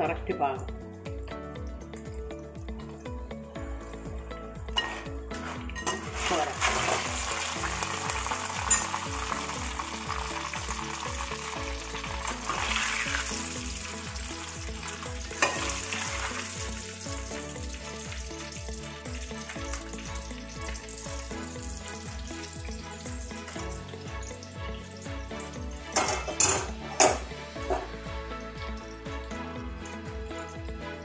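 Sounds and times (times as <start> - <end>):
oil sizzling in deep frying: 2.0 - 31.0
metal ladle clinking pot: 4.8 - 7.4, 8.2 - 9.1, 15.3 - 16.3, 25.9 - 28.0.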